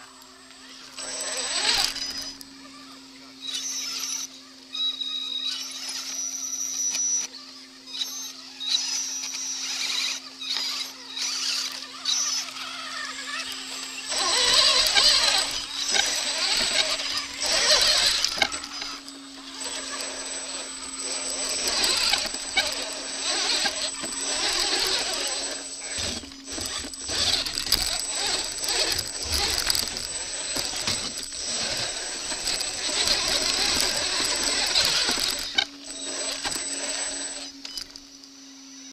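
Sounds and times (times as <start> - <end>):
electric motor whine: 0.0 - 38.9
tyres crunching over gravel: 13.3 - 37.2.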